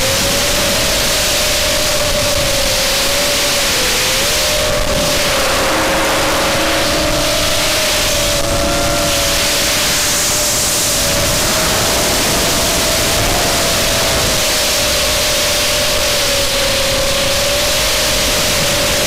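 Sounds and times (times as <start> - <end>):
drone motors whining: 0.0 - 19.0
wind noise: 0.0 - 19.0.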